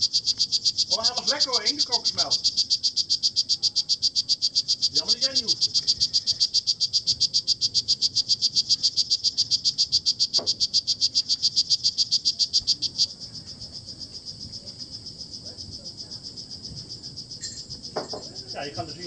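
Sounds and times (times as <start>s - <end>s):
frog calling in rapid chirps: 0.0s - 13.8s.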